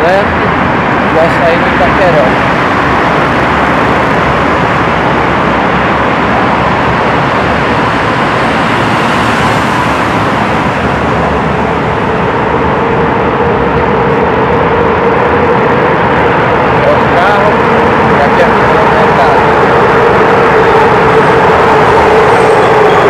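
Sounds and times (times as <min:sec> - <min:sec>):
traffic in a road tunnel: 0:00.0 - 0:23.0.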